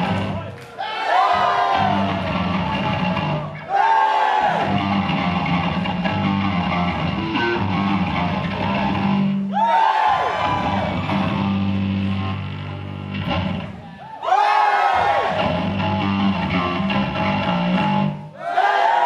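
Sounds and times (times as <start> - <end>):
electric bass guitar: 0.0 - 0.4, 1.7 - 3.6, 4.6 - 9.5, 10.4 - 13.9, 15.2 - 18.2.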